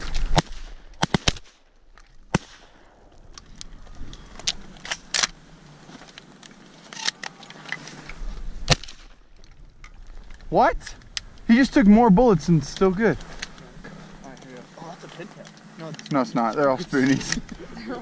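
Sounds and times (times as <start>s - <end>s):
shotgun shots: 0.1s - 1.6s, 2.3s - 2.9s, 8.7s - 9.1s
faint rustle: 3.0s - 18.0s.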